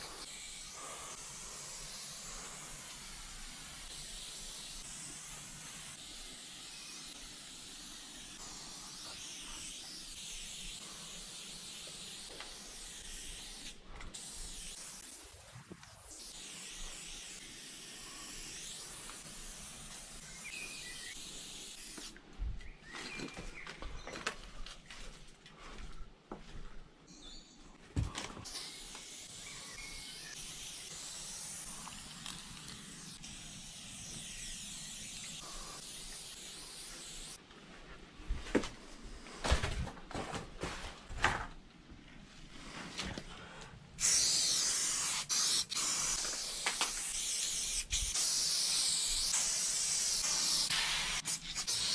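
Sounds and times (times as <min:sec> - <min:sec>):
spray paint can hissing: 0:00.0 - 0:22.2, 0:28.4 - 0:37.4, 0:44.0 - 0:51.9.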